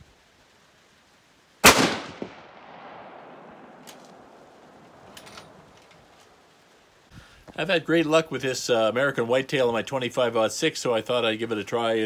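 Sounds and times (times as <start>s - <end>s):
rifle shot echoing off hills: 1.6s - 5.8s.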